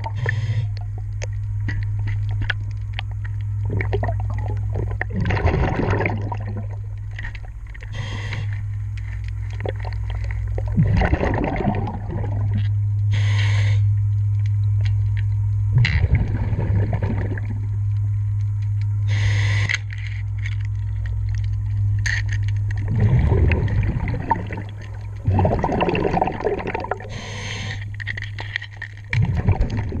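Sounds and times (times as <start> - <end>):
exhaled bubbles rumbling: 0.0 - 13.3, 13.9 - 19.2, 20.5 - 30.0
steady low hum: 0.0 - 30.0
hissing regulator inhalations: 0.1 - 0.8, 7.8 - 8.6, 13.1 - 13.9, 19.0 - 19.9, 27.0 - 28.1.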